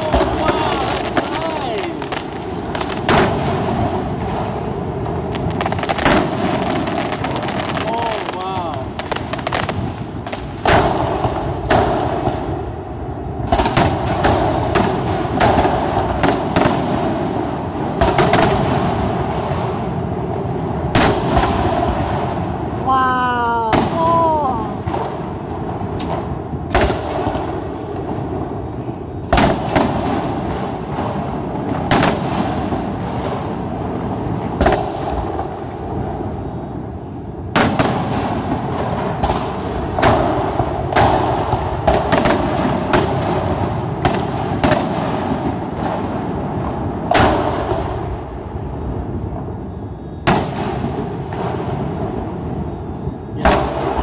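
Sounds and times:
firework shells bursting: 0.0 - 12.8, 23.4 - 36.4, 37.4 - 48.1
steady background hiss: 0.0 - 54.0.

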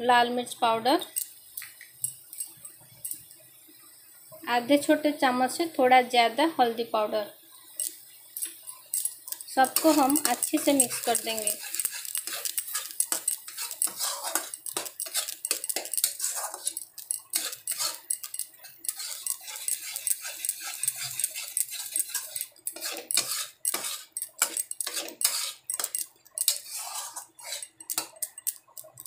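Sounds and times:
paste frying in oil: 0.0 - 29.0
metal spatula scraping a metal pan: 7.8 - 29.0.

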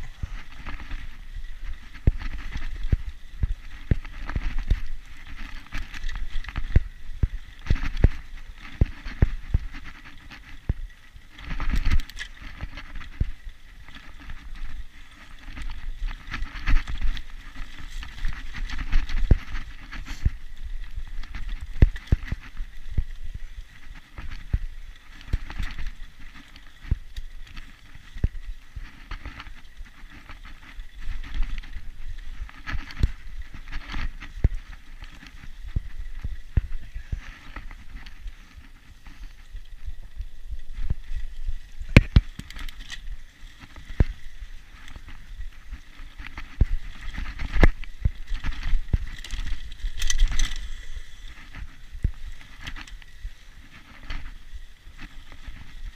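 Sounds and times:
bike clicks and rattles: 0.0 - 55.9
bike tyres crunching on dirt: 0.0 - 55.9
wind rumble on microphone: 0.0 - 55.9.

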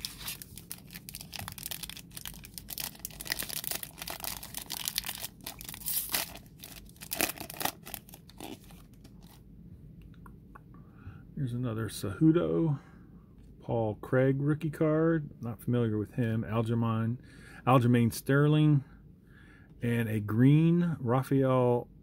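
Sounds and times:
foil wrapper crinkling: 0.0 - 9.4.

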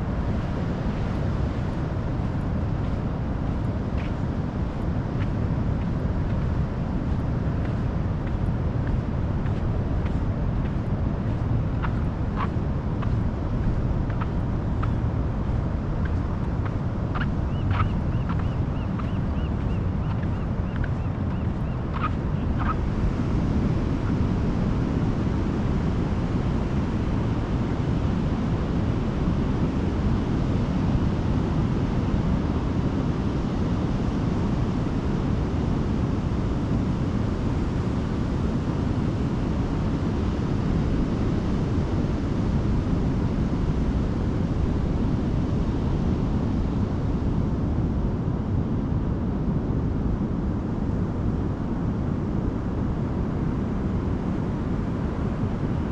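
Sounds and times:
ocean surf: 0.0 - 30.1
wind noise on microphone: 0.0 - 55.9.

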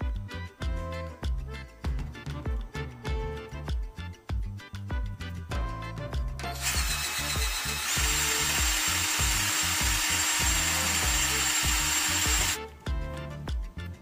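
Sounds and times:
cordless drill whining: 6.4 - 12.6.

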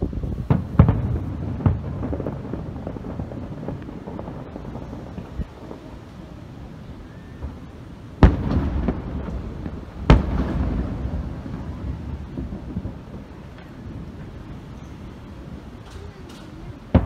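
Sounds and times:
small firework pops: 0.5 - 3.0, 8.2 - 13.8, 15.8 - 17.0.

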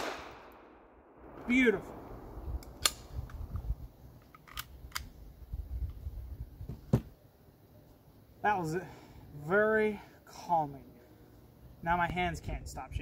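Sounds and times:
low rumble: 0.4 - 4.0
firearms clicking and knocking: 2.6 - 5.2.

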